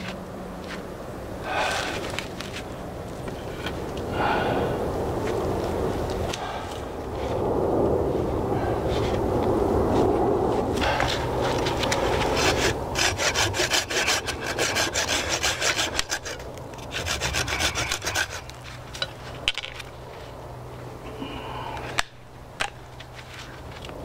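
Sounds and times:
hand saw cutting wood: 10.8s - 19.0s.

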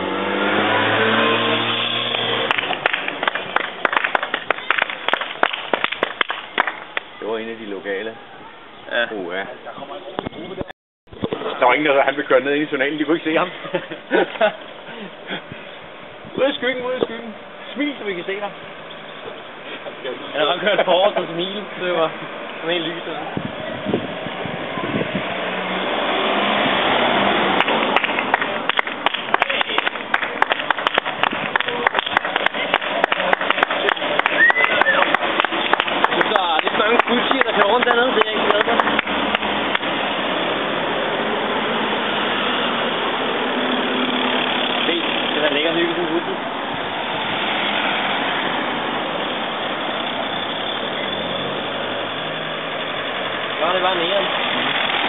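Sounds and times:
car driving past: 0.0s - 6.0s, 18.7s - 55.0s
cyclists riding by: 0.0s - 55.0s
wind and road noise: 0.0s - 55.0s
spectators clapping: 2.0s - 7.1s, 27.5s - 40.1s.

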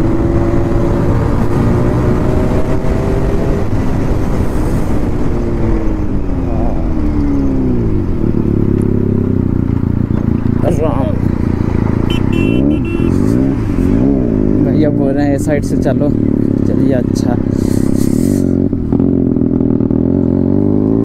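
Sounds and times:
motorcycle engine running: 5.9s - 21.0s.

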